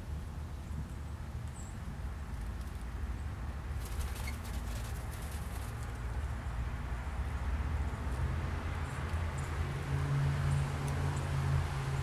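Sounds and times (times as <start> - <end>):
dove wings fluttering: 3.7 - 6.1.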